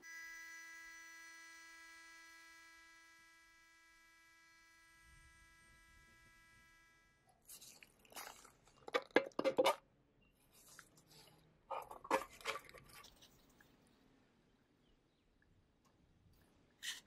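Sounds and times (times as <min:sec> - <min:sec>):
metal tin set down: 0:11.7 - 0:13.0
metal lid clicks and scrapes: 0:11.8 - 0:13.1.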